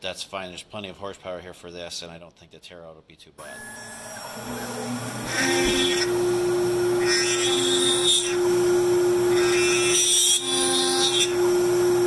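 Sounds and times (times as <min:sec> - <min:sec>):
drill bit cutting into wood: 0:03.4 - 0:12.0
router spindle whine: 0:03.4 - 0:12.0.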